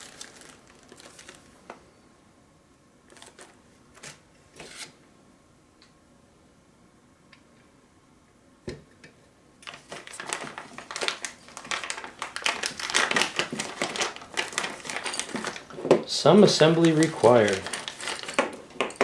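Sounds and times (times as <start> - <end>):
plastic bag crinkling: 0.0 - 1.7, 3.1 - 4.2, 9.6 - 19.0.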